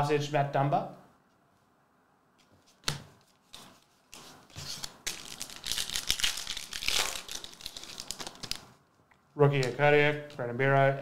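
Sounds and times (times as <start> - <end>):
card pack wrapper tearing: 4.6 - 8.6
wrapper crinkling: 4.6 - 8.8.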